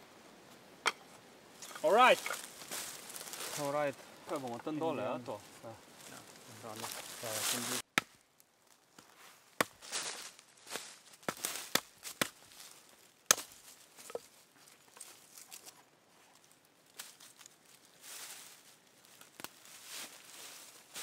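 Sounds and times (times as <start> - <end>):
dry leaf litter rustling: 1.6 - 7.8, 9.8 - 11.7, 16.4 - 21.0
hatchet chopping branch: 7.9 - 8.2, 9.0 - 10.0, 11.2 - 12.4, 13.3 - 14.2.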